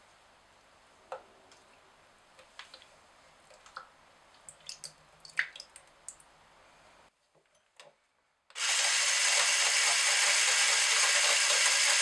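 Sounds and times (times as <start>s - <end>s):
small clicks and splashes: 3.5s - 6.3s.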